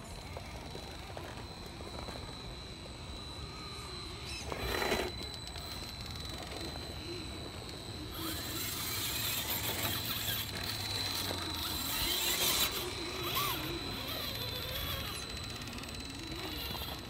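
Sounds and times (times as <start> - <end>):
electric motor and gears whining: 0.0 - 17.0
tyres grinding over rock: 4.3 - 6.9, 8.1 - 15.5.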